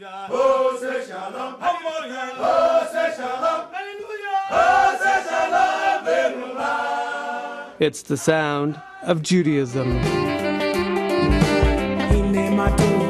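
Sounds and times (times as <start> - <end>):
men chanting a song: 0.0 - 7.8, 8.7 - 9.2.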